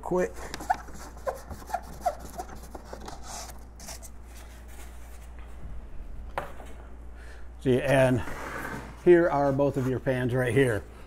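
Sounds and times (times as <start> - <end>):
foam board squeaking and rubbing: 0.4 - 4.0.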